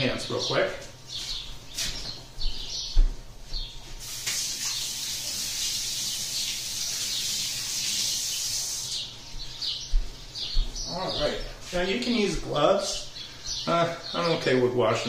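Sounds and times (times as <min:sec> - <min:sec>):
tap water running into sink: 0:04.0 - 0:08.8.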